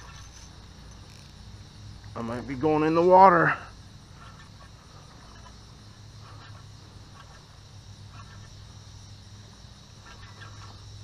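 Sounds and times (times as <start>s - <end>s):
high-pitched insect chorus: 0.0s - 11.0s
low steady hum: 0.0s - 11.0s.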